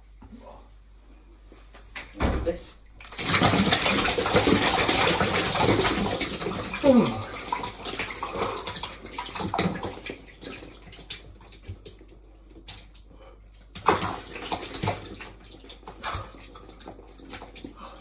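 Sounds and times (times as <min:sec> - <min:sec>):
slime splashing: 0:03.0 - 0:13.0, 0:13.7 - 0:17.8
slime dripping: 0:06.8 - 0:17.8.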